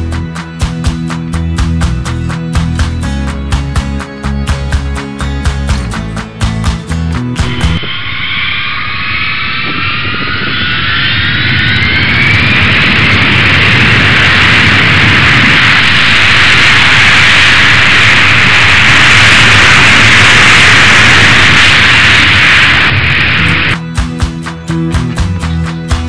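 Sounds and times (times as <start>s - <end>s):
jet engine whine and roar: 7.4s - 23.8s.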